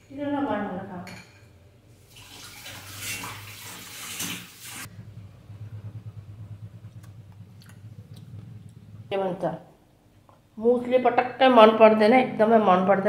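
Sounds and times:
water running from tap: 2.0 - 4.9
low steady hum: 4.9 - 13.0.

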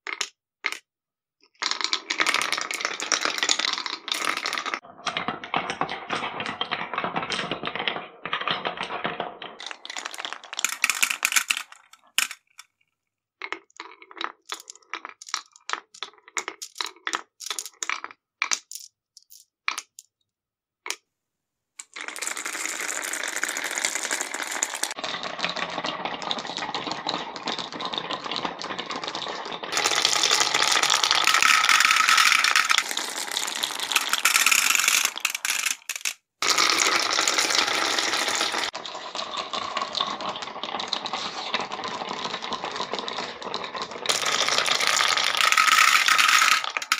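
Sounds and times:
marbles rolling on wooden tracks: 1.5 - 12.7, 13.4 - 20.1, 21.8 - 46.9
marbles piling into plastic trucks: 1.6 - 12.7, 13.4 - 20.0, 21.8 - 46.9.

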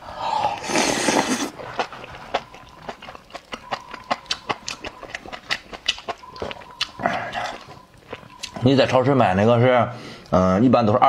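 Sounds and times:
wet chewing smacks: 0.6 - 9.0.

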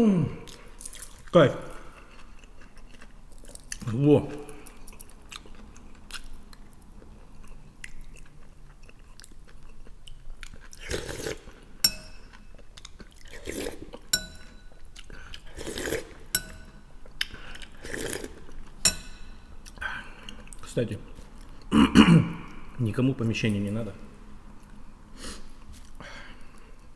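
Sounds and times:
chewing: 0.5 - 11.7, 12.3 - 14.1
soup slurping: 10.8 - 11.5, 15.5 - 16.2
metal spoon clinking on bowl: 11.8 - 12.4, 14.1 - 14.8, 16.3 - 16.8, 18.8 - 19.5.

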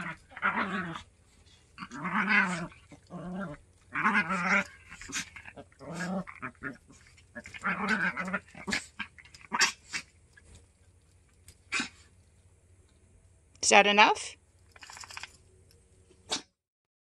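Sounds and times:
small dogs growling: 0.0 - 10.6, 11.5 - 12.2, 16.3 - 16.6.

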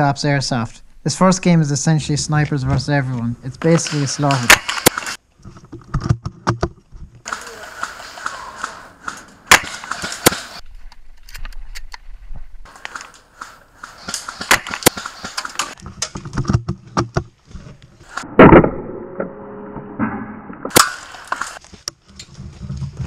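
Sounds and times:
airsoft gunfire clicks and cracks: 3.7 - 5.2, 7.3 - 10.6, 12.7 - 15.8, 20.7 - 21.6.

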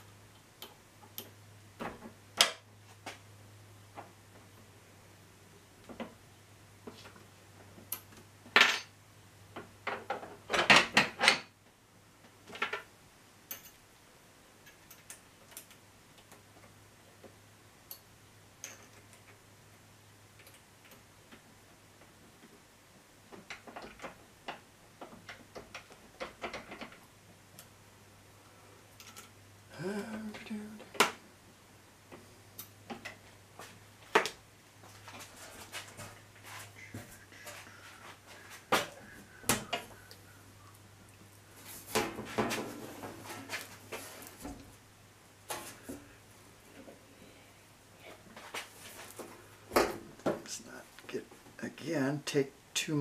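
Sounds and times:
metal tools clinking and knocking: 18.6 - 19.1, 29.0 - 29.4.

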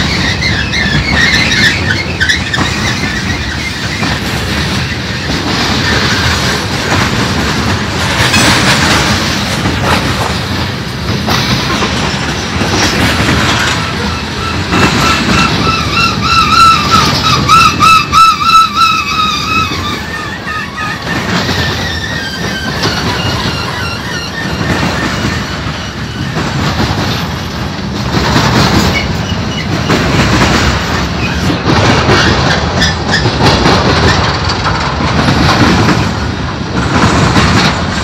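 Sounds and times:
high wheel squeal: 0.0 - 6.5, 11.6 - 26.6
freight train wheels rumbling on rail: 0.0 - 38.0.

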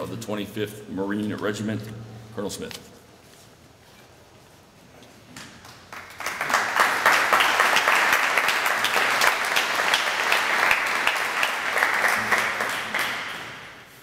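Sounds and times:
audience applauding: 5.6 - 13.8.

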